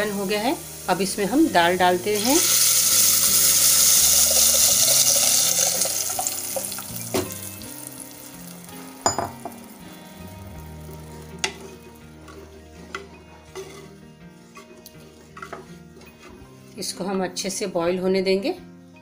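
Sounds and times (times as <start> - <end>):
dal sizzling in hot oil: 0.0 - 10.0, 10.6 - 16.8
utensils knocking against pot: 9.1 - 9.6.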